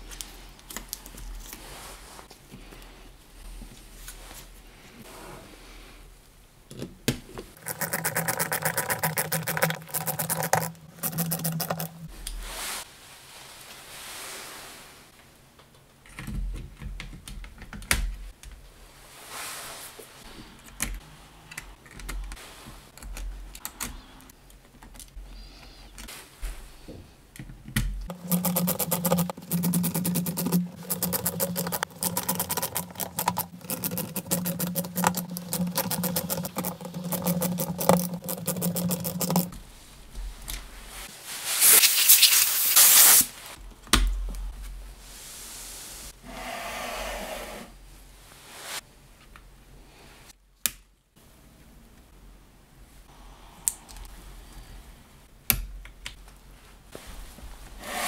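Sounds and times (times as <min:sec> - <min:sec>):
knocks and handling of parts: 0:15.6 - 0:18.6, 0:26.9 - 0:40.6.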